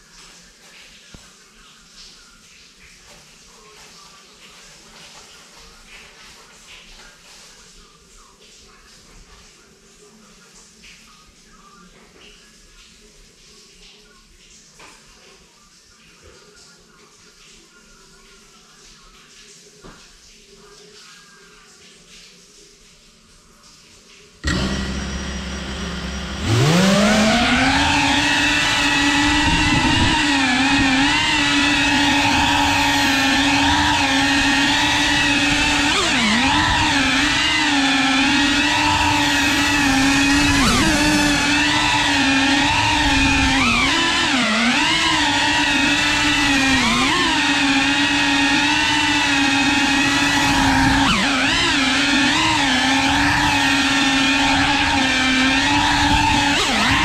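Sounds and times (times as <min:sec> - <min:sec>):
drone motors whining: 0:24.4 - 0:57.0.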